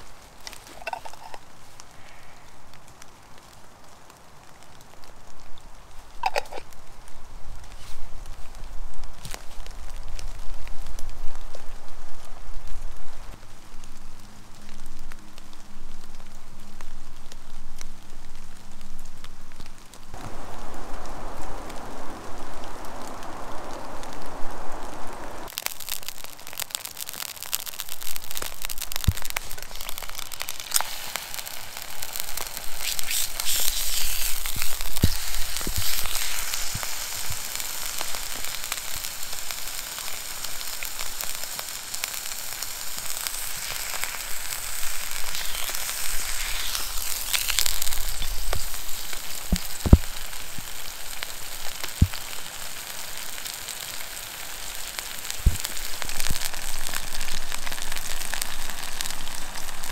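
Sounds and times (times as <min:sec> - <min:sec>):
steak sizzling in a pan: 0:00.0 - 0:02.8, 0:06.2 - 0:06.8, 0:20.2 - 0:59.9.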